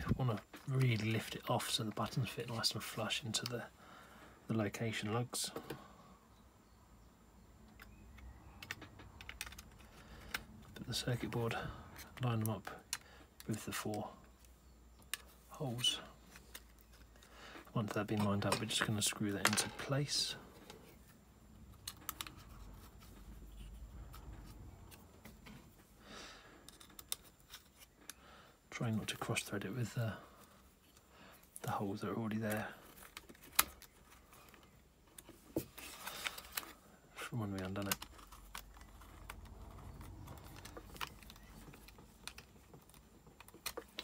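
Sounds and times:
hands handling circuit board: 7.6s - 25.9s, 26.6s - 28.2s, 30.4s - 44.0s.

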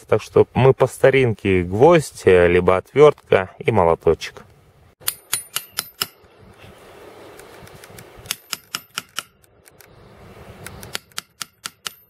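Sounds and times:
hammer tapping steel rod: 5.0s - 6.3s, 8.3s - 9.4s, 10.8s - 12.0s.

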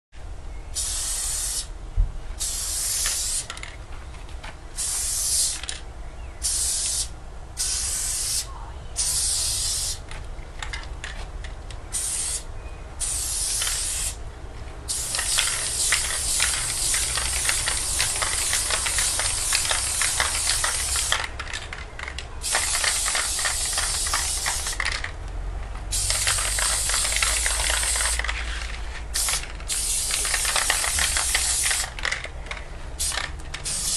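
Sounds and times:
spray-paint can hissing: 0.8s - 1.7s, 2.4s - 3.5s, 4.8s - 5.8s, 6.4s - 10.0s, 11.9s - 14.2s, 14.9s - 21.3s, 22.4s - 25.1s, 25.9s - 28.3s, 29.2s - 32.1s, 33.0s - 33.9s.

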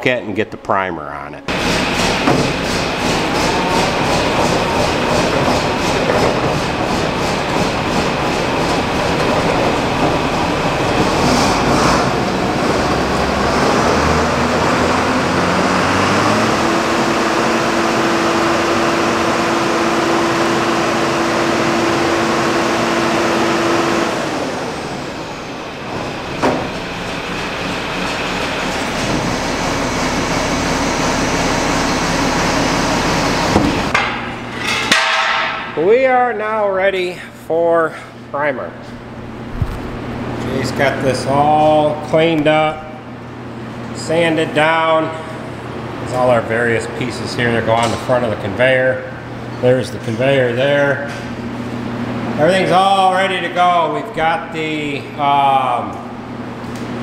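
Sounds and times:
machine clunk: 1.5s - 4.6s
mixer auger machine turning: 1.5s - 34.0s.

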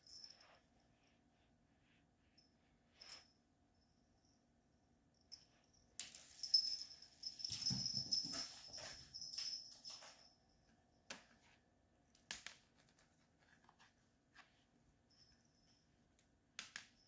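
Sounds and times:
paws scrabbling on laminate floor: 7.2s - 10.3s.

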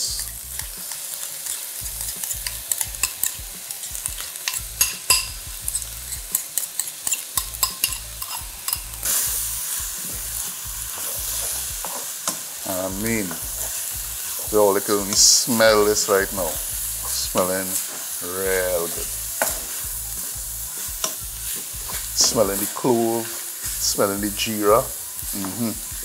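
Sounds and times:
meat sizzling in a frying pan: 0.0s - 26.0s
spoon clicking against pan: 2.2s - 8.9s.

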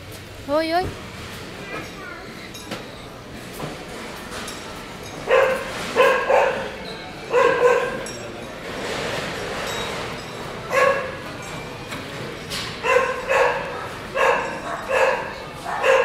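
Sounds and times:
dog barking: 5.3s - 8.0s, 10.7s - 11.2s, 12.8s - 16.0s.

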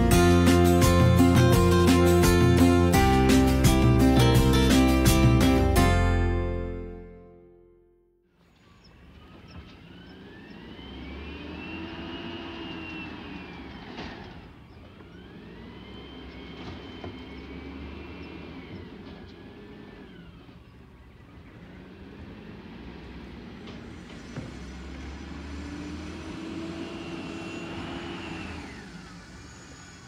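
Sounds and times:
garbage truck engine revving: 0.0s - 6.3s, 9.0s - 30.0s
hydraulic whine: 8.3s - 30.0s.

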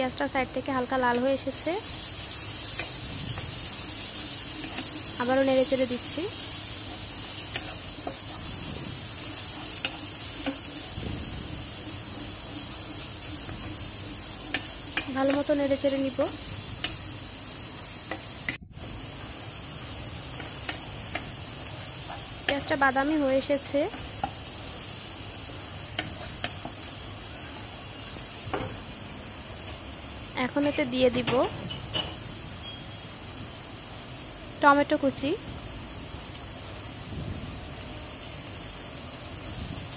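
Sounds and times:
onions sizzling in oil: 0.0s - 39.9s
spatula tapping a pan: 13.2s - 15.5s, 20.3s - 21.4s
spatula clicking on pan: 14.5s - 15.5s.

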